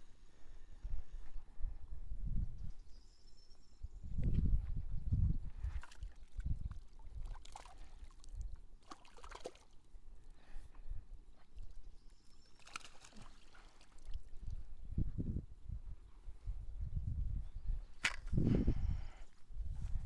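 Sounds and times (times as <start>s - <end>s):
fish splashing in water: 5.8s - 9.8s, 12.5s - 14.3s.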